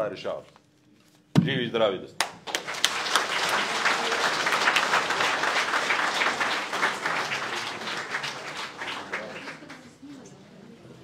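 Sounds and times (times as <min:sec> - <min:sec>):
audience applauding: 0:02.2 - 0:10.0.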